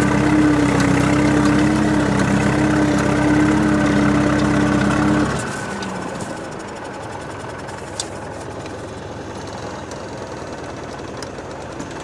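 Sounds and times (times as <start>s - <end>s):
diesel tractor engine chugging: 0.0s - 12.0s.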